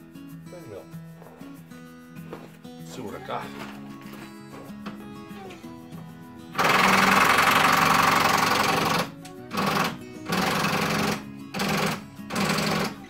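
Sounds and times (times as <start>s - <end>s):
power tool whirring: 4.8s - 13.0s.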